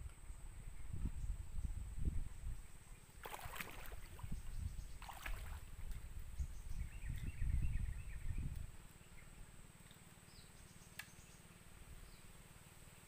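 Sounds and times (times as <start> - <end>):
water splashing: 3.2 - 4.4, 5.0 - 5.8.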